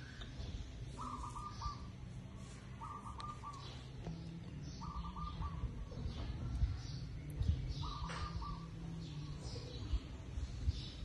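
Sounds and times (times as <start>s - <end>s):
bird calling: 0.0s - 6.3s, 7.7s - 9.8s.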